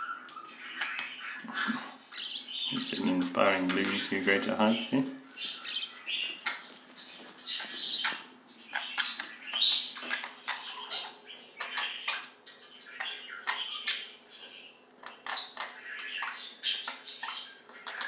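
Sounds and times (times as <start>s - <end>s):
budgerigars chattering: 0.0s - 18.0s.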